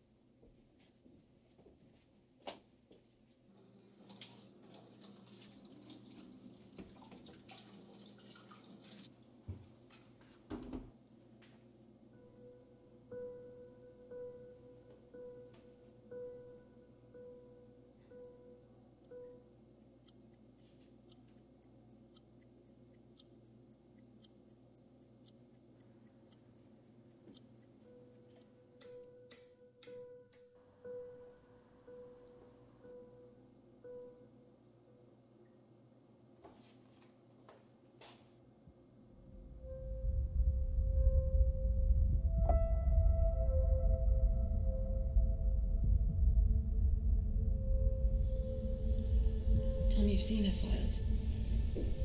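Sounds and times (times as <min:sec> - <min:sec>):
light ticking clicks: 0:19.0 - 0:30.4
faint low hum: 0:38.6 - 0:52.0.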